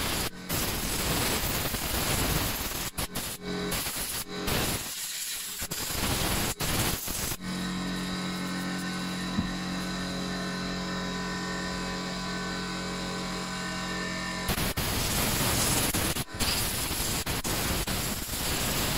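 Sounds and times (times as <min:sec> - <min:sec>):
compressed air hissing: 0:00.0 - 0:07.4, 0:14.5 - 0:18.9
steady motor hum: 0:00.0 - 0:18.9.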